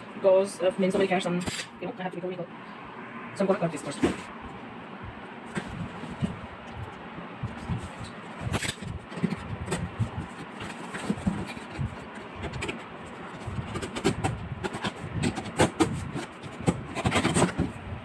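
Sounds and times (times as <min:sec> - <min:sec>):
cardboard scraping and rustling: 0:05.4 - 0:06.5, 0:07.5 - 0:17.9.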